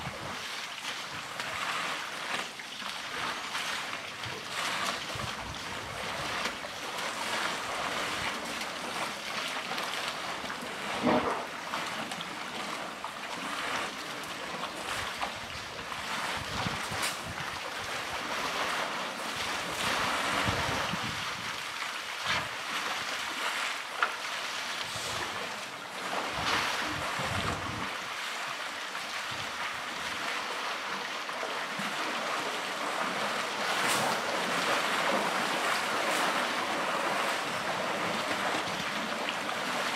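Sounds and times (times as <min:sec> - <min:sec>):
water sloshing and splashing: 0:00.0 - 0:39.9
wind buffeting microphone: 0:16.3 - 0:17.6, 0:19.8 - 0:21.6, 0:26.3 - 0:28.1.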